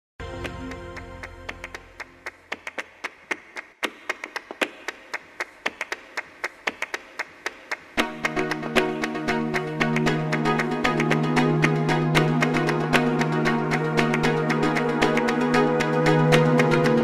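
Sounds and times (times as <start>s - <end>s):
music with bass line: 8.0s - 17.0s.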